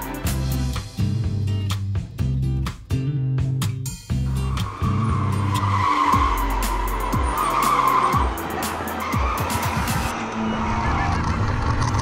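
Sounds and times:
background music with bass line: 0.0 - 10.1
go-kart tyres squealing: 4.3 - 12.0.

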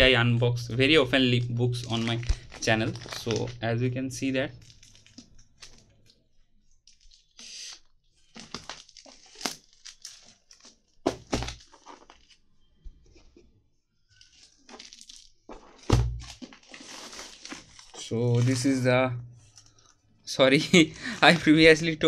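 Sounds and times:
plastic bag crinkling: 1.7 - 3.6, 4.5 - 6.1, 8.2 - 12.4, 14.1 - 18.8, 20.6 - 21.8.

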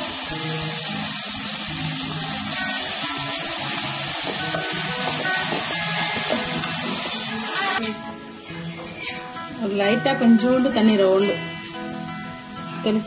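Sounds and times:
background music: 0.0 - 13.0
vegetables sizzling in oil: 0.0 - 13.0.

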